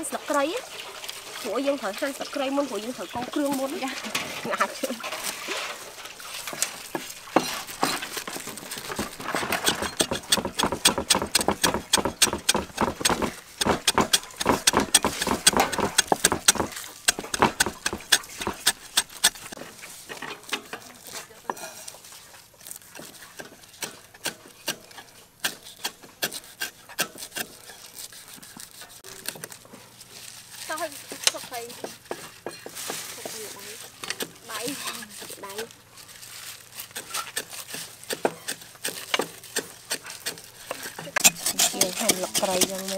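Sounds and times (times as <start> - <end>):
cleaver chopping on wooden block: 7.4 - 19.6, 37.0 - 40.4.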